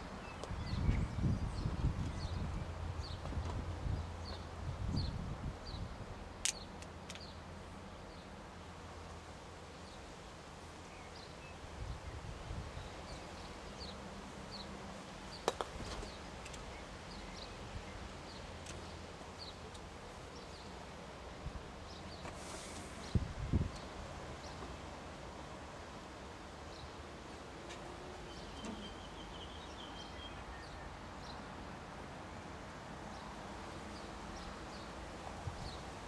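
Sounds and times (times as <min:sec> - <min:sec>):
bird chirping: 0:28.2 - 0:31.4.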